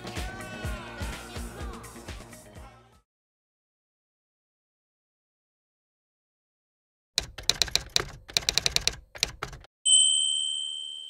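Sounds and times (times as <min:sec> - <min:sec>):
typewriter key strikes: 0:07.2 - 0:09.7
typewriter bell ding: 0:09.9 - 0:11.0.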